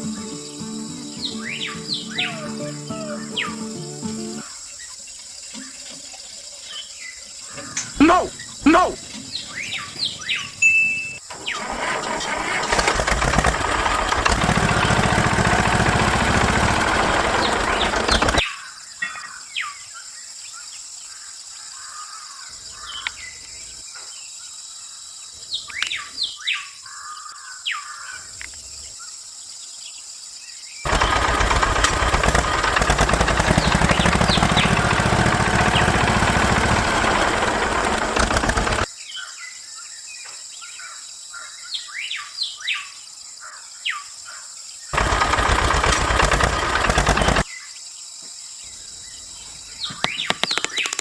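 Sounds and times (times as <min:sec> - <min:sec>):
birds chirping: 0:00.0 - 0:24.1, 0:30.8 - 0:39.4, 0:44.8 - 0:47.8, 0:48.6 - 0:51.0
small water pump motor whirring: 0:30.9 - 0:38.9, 0:45.0 - 0:47.4.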